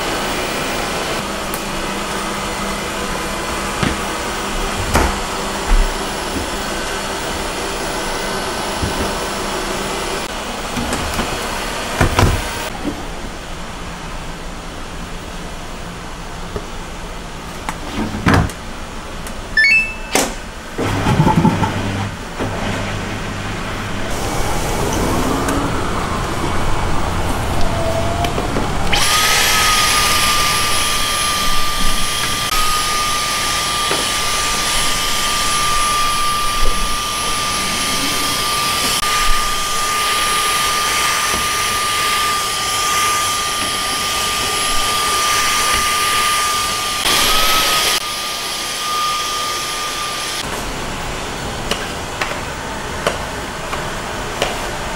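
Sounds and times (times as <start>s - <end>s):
handheld vacuum cleaner whining: 0.0s - 12.8s, 23.6s - 51.3s
rising electronic beeps: 19.6s - 20.4s.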